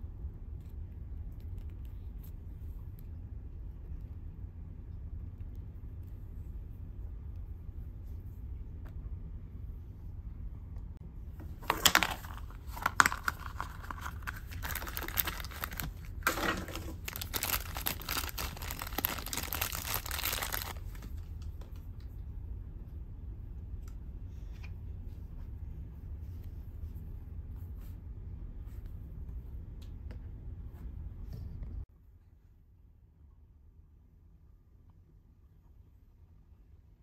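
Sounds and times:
plastic wrapper crinkling and tearing: 0:11.6 - 0:21.1.

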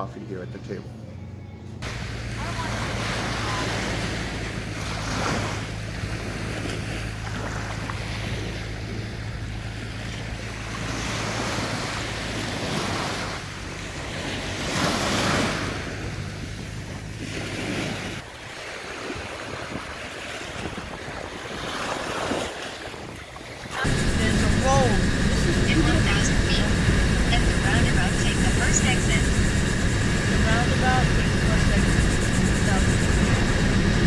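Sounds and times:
steady low hum: 0:00.0 - 0:18.4, 0:23.4 - 0:34.0
surf breaking on a beach: 0:01.8 - 0:34.0
wind buffeting the microphone: 0:14.8 - 0:34.0.

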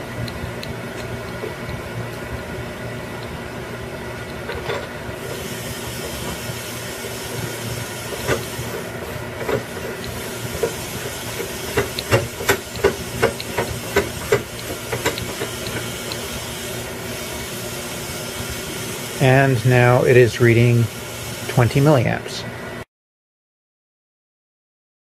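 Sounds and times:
steady hiss: 0:05.2 - 0:22.4.

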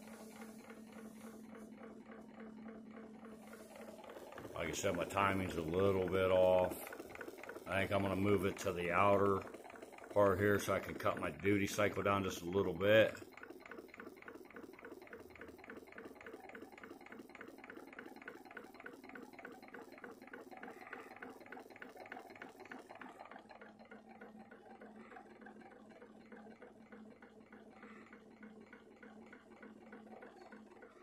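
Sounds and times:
pulse motor ticking: 0:00.0 - 0:31.0.

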